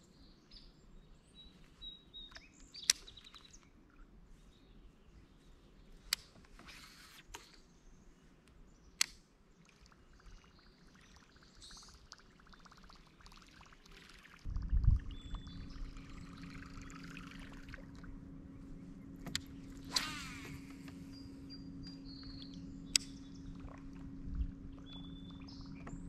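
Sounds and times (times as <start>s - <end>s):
steady low hum: 0.7s - 26.0s
water trickling: 9.5s - 18.2s
fishing reel cranking: 15.4s - 18.0s, 19.3s - 21.3s.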